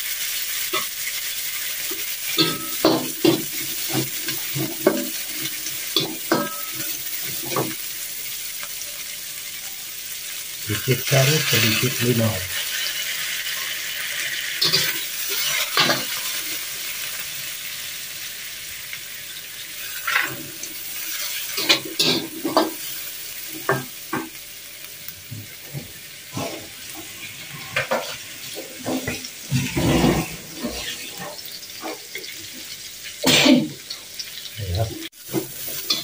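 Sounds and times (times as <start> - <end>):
food sizzling in oil: 0.0 - 36.0
metal spatula scraping wok: 14.4 - 16.2, 26.3 - 32.0.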